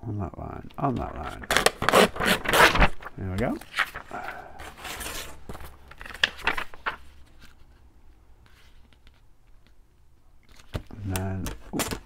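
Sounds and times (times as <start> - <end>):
paper rustling: 0.7 - 9.8, 10.4 - 12.0
tracing paper crinkling: 0.8 - 7.9.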